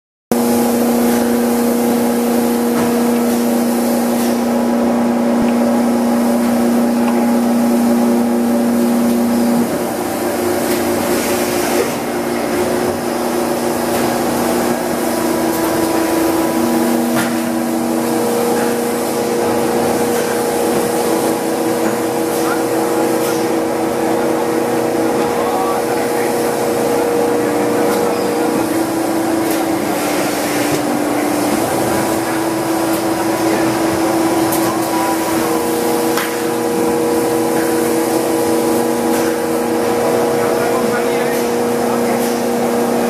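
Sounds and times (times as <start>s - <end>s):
factory noise: 0.3s - 43.0s
molding machine humming and whining: 0.4s - 43.0s.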